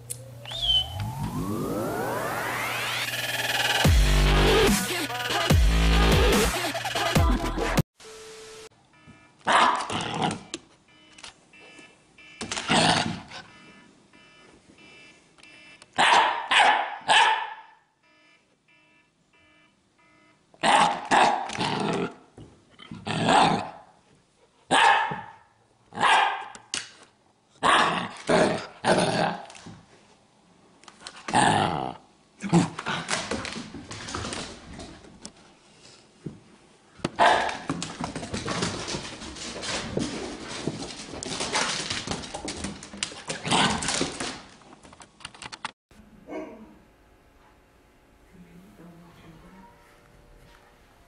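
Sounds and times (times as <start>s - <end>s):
puppy barking and grumbling: 46.2s - 46.8s.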